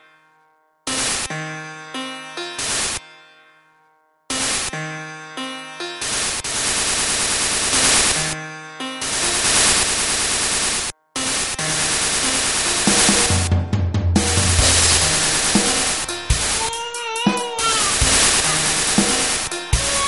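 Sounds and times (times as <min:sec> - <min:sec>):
static-like noise bursts: 0:00.9 - 0:01.3, 0:02.6 - 0:03.0, 0:04.3 - 0:04.7, 0:06.0 - 0:08.4, 0:09.0 - 0:13.6, 0:14.2 - 0:16.7, 0:17.6 - 0:20.0.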